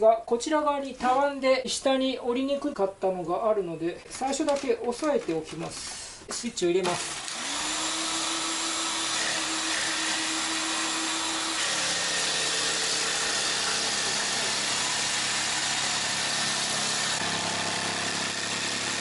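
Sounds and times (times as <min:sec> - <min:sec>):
electric jigsaw sawing plywood: 0:06.8 - 0:19.0.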